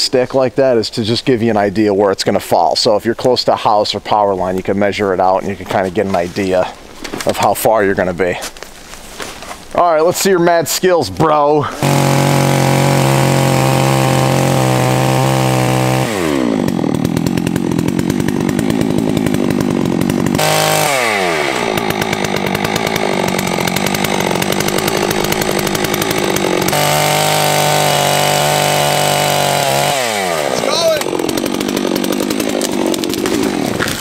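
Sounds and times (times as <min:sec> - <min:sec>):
chainsaw cutting tree: 0:11.6 - 0:34.0.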